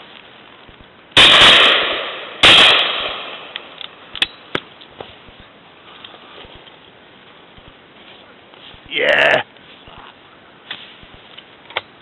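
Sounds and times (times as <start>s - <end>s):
shotgun shots echoing: 1.2s - 3.6s.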